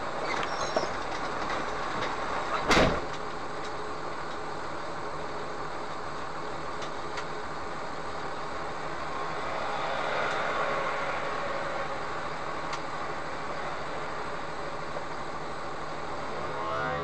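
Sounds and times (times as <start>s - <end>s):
idling engine hum: 0.0s - 17.0s
traffic noise: 0.0s - 17.0s
truck passing by: 8.2s - 17.0s.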